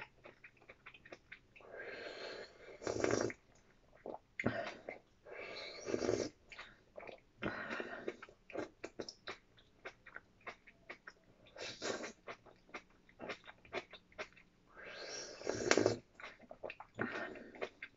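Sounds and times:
chewing clicks and smacks: 0.0s - 1.6s, 8.2s - 11.2s, 12.2s - 14.6s
person slurping soup: 1.9s - 3.4s, 4.1s - 6.4s, 11.6s - 12.4s, 14.8s - 16.4s.

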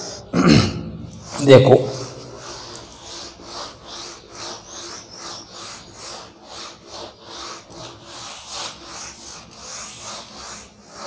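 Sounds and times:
duster rubbing on a whiteboard: 1.1s - 11.0s.

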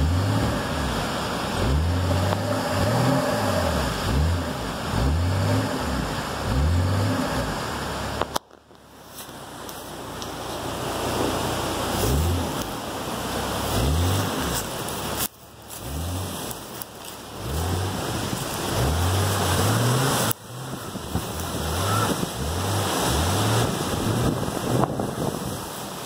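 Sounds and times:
car engine revving in bursts: 0.0s - 8.4s, 10.8s - 25.6s
steady rushing hiss: 7.1s - 26.0s.

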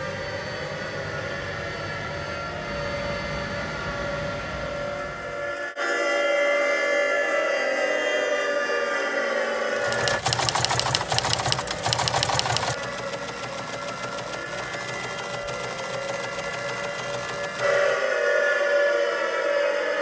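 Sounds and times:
small machine clattering: 9.8s - 18.0s.

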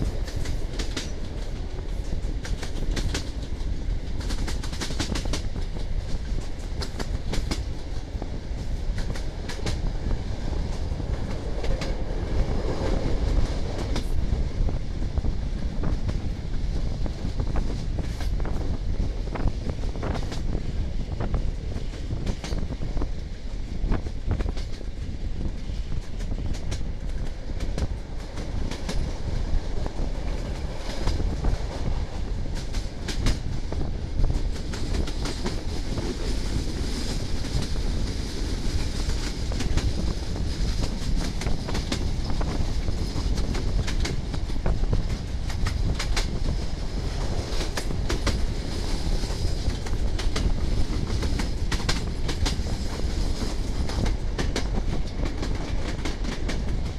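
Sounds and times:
train wheels clattering over rail joints: 0.0s - 9.9s, 23.9s - 56.9s
steady train rumble: 0.0s - 56.9s.

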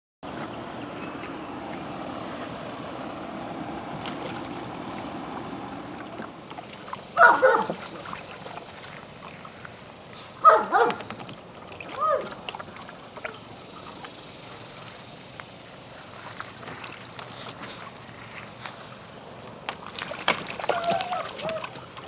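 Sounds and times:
steady low hum: 0.2s - 20.2s
puppy yipping: 7.2s - 7.7s, 10.4s - 11.0s.

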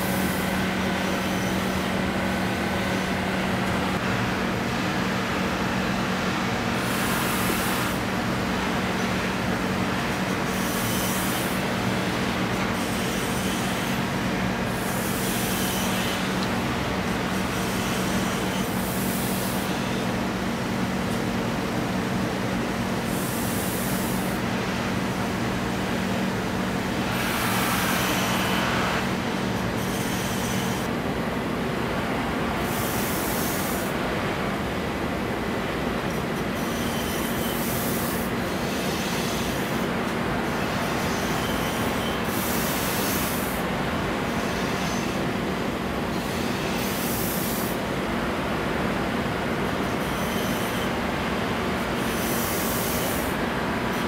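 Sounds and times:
knife handle hissing on wheel: 27.0s - 30.9s.

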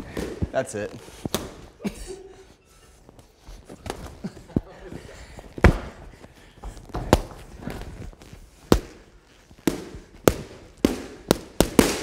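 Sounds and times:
feet shuffling on foam mat: 0.0s - 12.0s
boxing gloves smacking: 1.2s - 1.8s, 5.5s - 6.1s, 6.8s - 12.0s.

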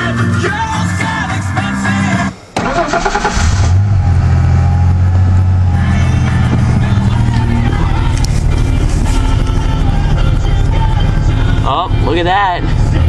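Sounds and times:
car engine fast idle: 2.4s - 13.0s
starter motor cranking: 2.6s - 3.8s.

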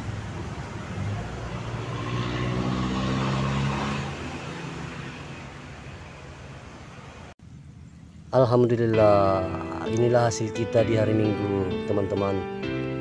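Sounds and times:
vehicle engine passing: 0.0s - 7.4s.

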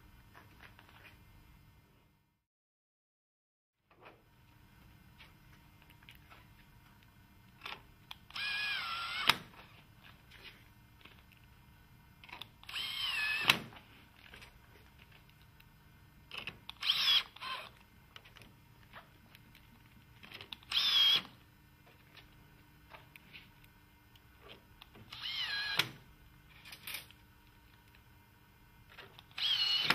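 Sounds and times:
drill-driver motor whine: 8.3s - 9.4s, 12.6s - 13.6s, 16.7s - 17.8s, 20.6s - 21.4s, 25.0s - 26.0s, 29.3s - 29.9s.

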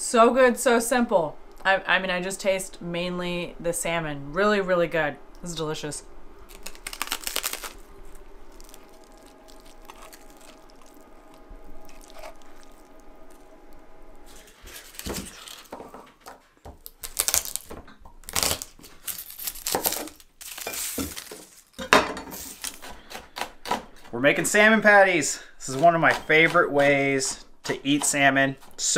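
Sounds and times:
garlic skins crackling: 6.4s - 15.8s, 16.6s - 28.9s.

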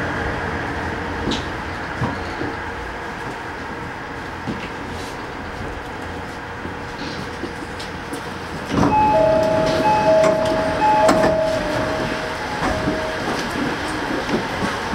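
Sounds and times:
train rumble: 0.0s - 14.9s
steady high tones: 8.8s - 14.2s.

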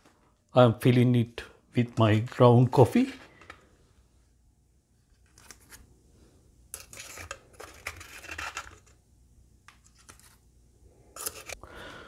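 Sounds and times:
spoon scraping ground coffee: 6.7s - 8.9s.

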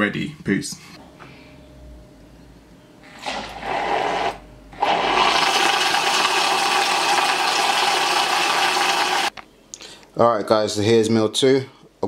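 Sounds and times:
blender running: 3.3s - 9.3s.

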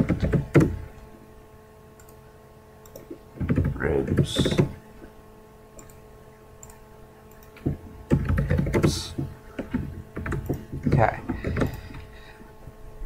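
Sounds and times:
computer keyboard keystrokes: 0.0s - 0.8s, 2.0s - 2.2s, 2.8s - 4.8s, 5.8s - 6.0s, 6.6s - 12.1s
faint electrical hum: 0.0s - 13.0s.

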